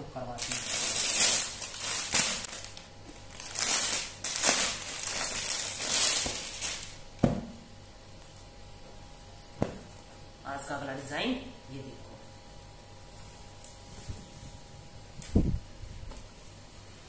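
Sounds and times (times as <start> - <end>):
plastic bag crinkling: 0.3 - 7.1.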